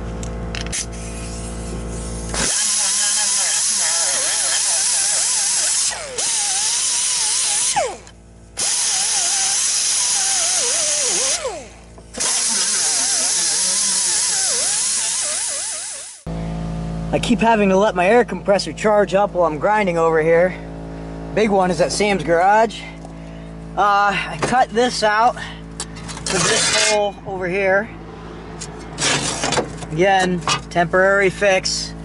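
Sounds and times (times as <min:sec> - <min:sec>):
pneumatic grinder grinding metal: 0:00.5 - 0:16.3, 0:25.8 - 0:27.2, 0:28.6 - 0:30.8.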